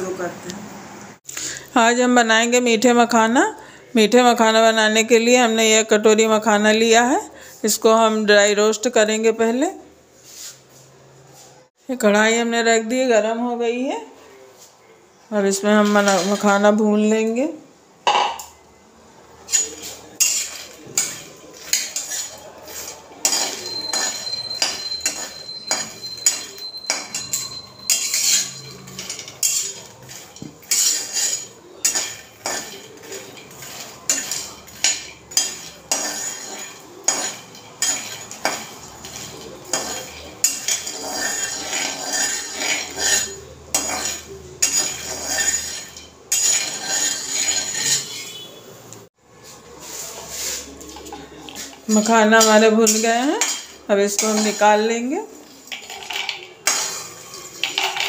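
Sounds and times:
metal spatula scraping a metal pan: 15.6s - 16.6s, 19.4s - 48.6s, 49.8s - 58.0s.

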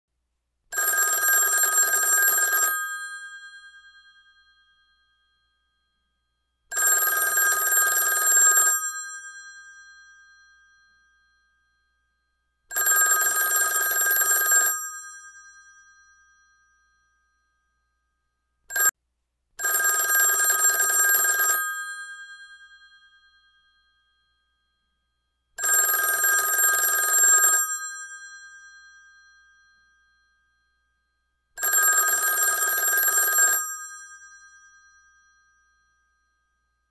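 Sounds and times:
old telephone bell ringing: 0.8s - 5.3s, 6.7s - 11.6s, 12.7s - 17.2s, 18.7s - 18.9s, 19.6s - 24.1s, 25.6s - 30.5s, 31.6s - 36.4s.

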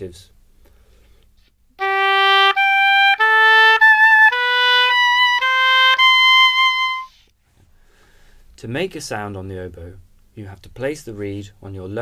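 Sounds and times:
solo oboe playing notes: 1.8s - 7.3s.

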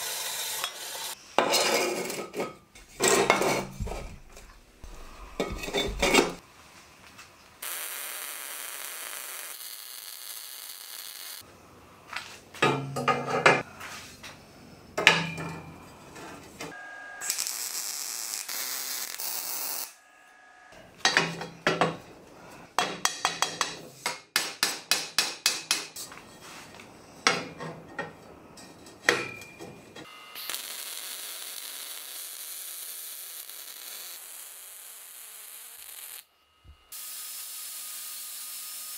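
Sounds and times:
welding arc crackling hiss: 0.0s - 1.2s, 7.6s - 11.4s, 17.2s - 20.0s, 30.2s - 36.3s, 36.9s - 38.9s
welding sharp bursts and knocks: 7.6s - 11.4s, 17.2s - 20.0s, 30.3s - 36.3s.

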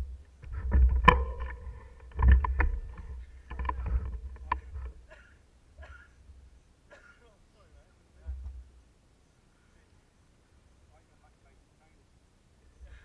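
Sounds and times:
bike clattering over bumps: 0.5s - 5.0s.

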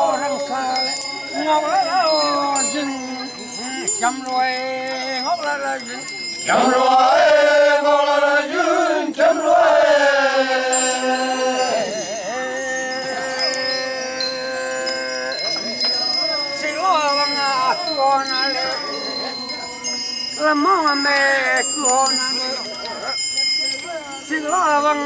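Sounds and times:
small bells tinkling: 0.0s - 25.0s
group of voices chanting: 6.4s - 22.7s.

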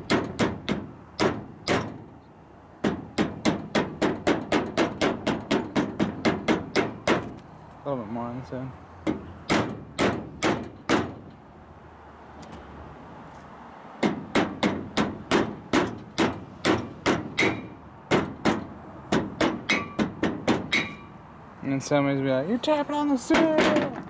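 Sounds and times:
hammer striking metal: 14.0s - 21.1s.

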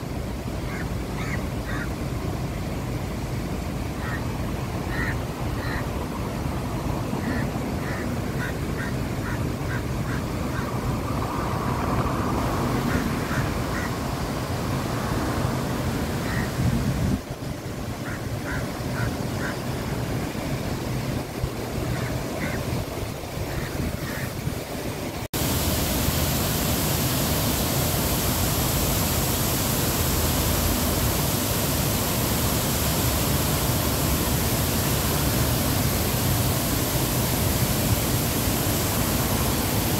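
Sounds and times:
traffic rumble and hiss: 0.0s - 39.9s
even rushing noise: 3.7s - 39.9s.

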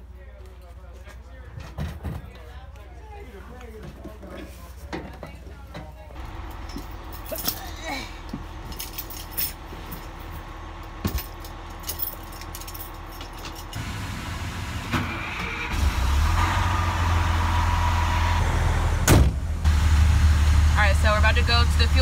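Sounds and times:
diesel truck engine rumbling: 5.4s - 22.0s.

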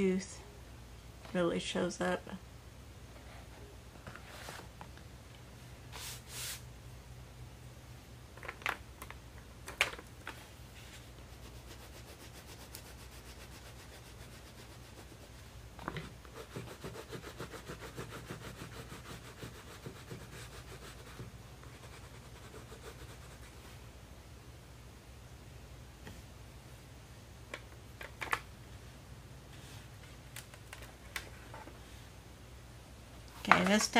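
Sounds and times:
crayon scribbling on paper: 11.3s - 15.4s, 16.3s - 23.6s.

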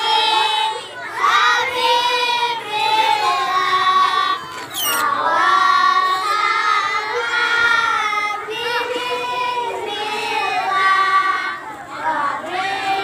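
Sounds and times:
children singing: 0.0s - 13.0s.

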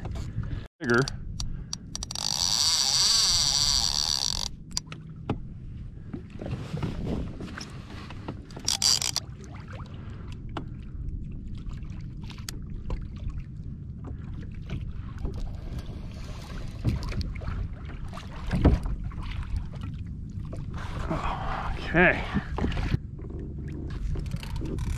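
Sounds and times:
water lapping against kayak: 0.0s - 24.9s
small clicks and knocks: 1.0s - 5.4s, 8.5s - 9.2s.

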